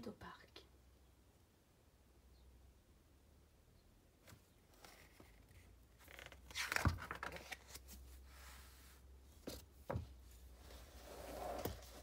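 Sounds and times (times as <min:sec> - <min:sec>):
paper page rustling: 0:04.3 - 0:08.7.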